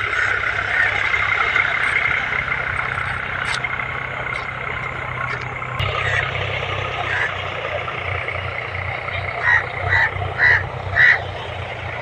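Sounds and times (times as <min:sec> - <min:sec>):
crow cawing: 0:00.0 - 0:01.4, 0:05.9 - 0:06.4, 0:07.0 - 0:07.4, 0:09.3 - 0:11.3
steady low hum: 0:00.0 - 0:12.0.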